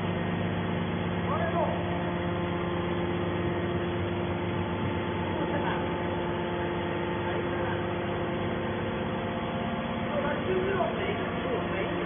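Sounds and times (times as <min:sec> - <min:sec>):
hydraulic motor and pump humming: 0:00.0 - 0:12.0.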